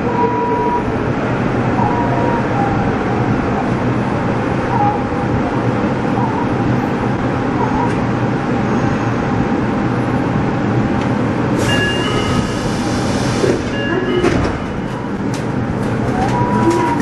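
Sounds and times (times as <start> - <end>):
subway train rumble and hum: 0.0 - 17.0.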